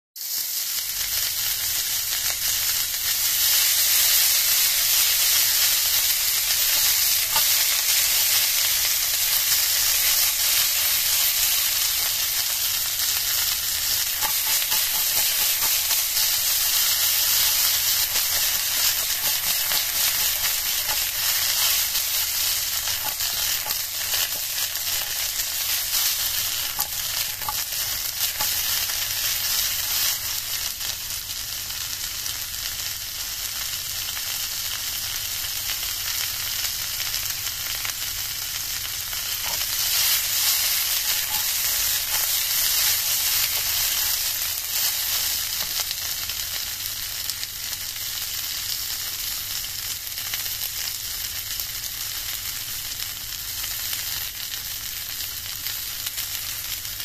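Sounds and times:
pea pods sizzling in oil: 0:00.2 - 0:57.0.

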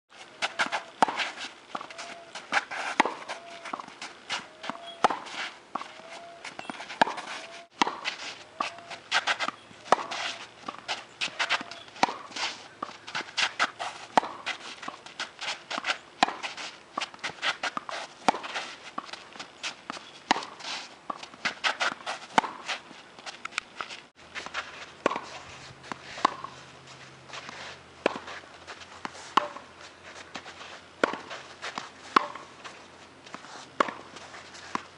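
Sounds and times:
quick footsteps on court: 0:00.1 - 0:34.9
racket hitting tennis ball: 0:00.4 - 0:34.9
ball bouncing: 0:03.0 - 0:13.1, 0:25.0 - 0:25.2, 0:28.0 - 0:28.3, 0:32.1 - 0:32.5.

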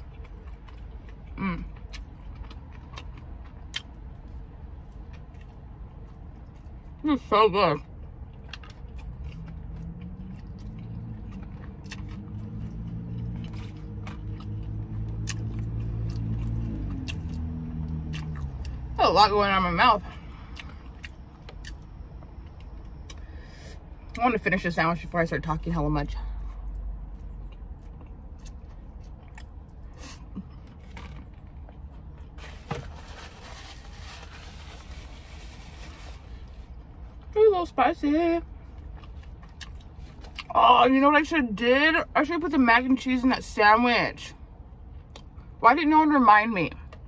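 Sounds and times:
chewing and biting food: 0:00.0 - 0:07.0, 0:07.9 - 0:19.0, 0:20.4 - 0:23.2, 0:26.3 - 0:32.4, 0:38.6 - 0:40.5
low steady hum: 0:00.0 - 0:47.0.

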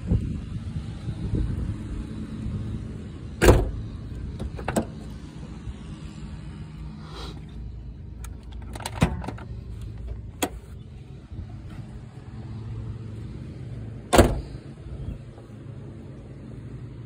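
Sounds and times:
car door shutting: 0:03.4 - 0:03.8, 0:14.1 - 0:14.6.

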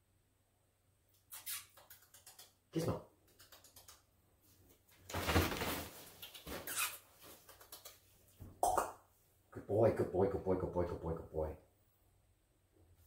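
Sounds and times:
fabric tunnel rustling: 0:05.1 - 0:06.7.

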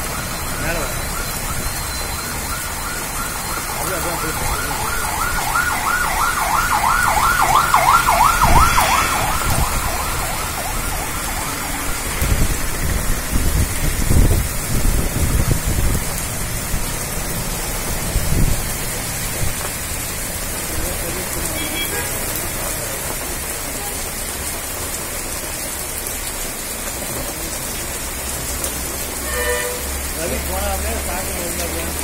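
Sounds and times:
siren wailing: 0:00.0 - 0:13.7
heavy rain pouring: 0:00.0 - 0:32.0.

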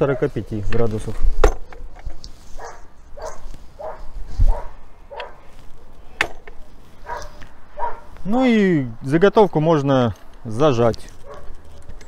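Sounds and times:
dog barking: 0:02.6 - 0:06.0, 0:07.0 - 0:08.1, 0:11.2 - 0:11.6.

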